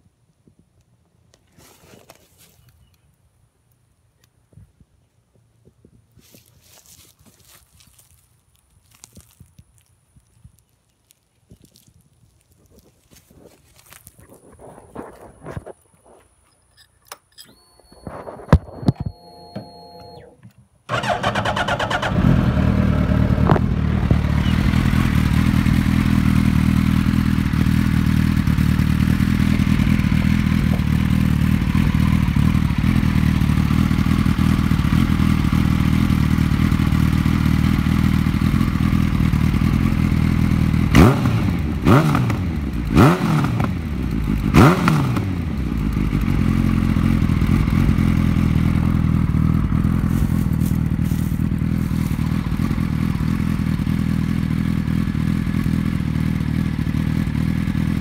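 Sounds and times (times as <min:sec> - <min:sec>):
motorcycle throttle blips: 0:15.0 - 0:58.0
motorcycle engine idling: 0:20.9 - 0:58.0.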